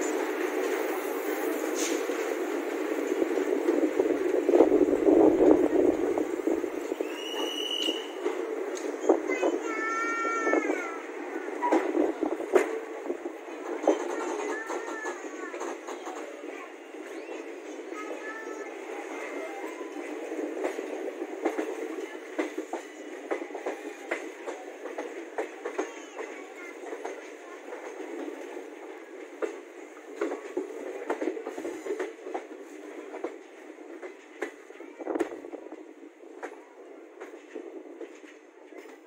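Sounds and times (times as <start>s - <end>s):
train rolling rumble: 0.0s - 39.0s
wheels clicking on rail joints: 11.4s - 35.4s.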